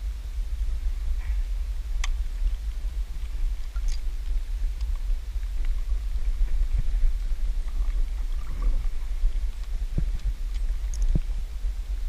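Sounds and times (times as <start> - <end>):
wind buffeting microphone: 0.0 - 12.0
faint clicks: 7.6 - 11.3.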